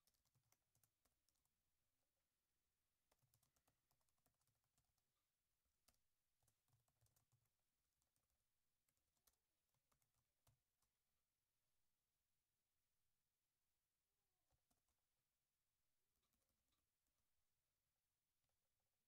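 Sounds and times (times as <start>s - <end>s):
keyboard typing: 0.0s - 1.6s, 3.0s - 5.2s, 5.8s - 11.0s, 14.4s - 15.1s, 16.1s - 17.3s.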